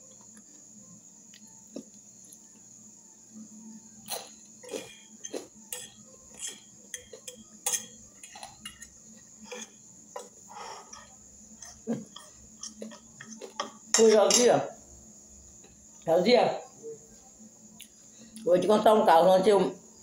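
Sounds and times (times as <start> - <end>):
fork clinking against glass bowl: 4.7 - 8.9.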